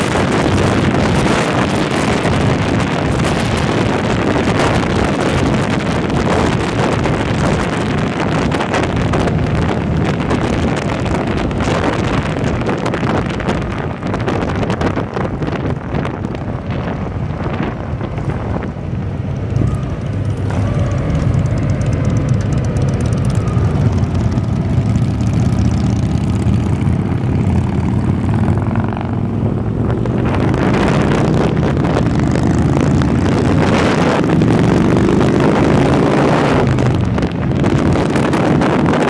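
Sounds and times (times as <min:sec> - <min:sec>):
motorcycle engine running: 0:00.0 - 0:39.0
wind rushing over microphone: 0:00.0 - 0:39.0.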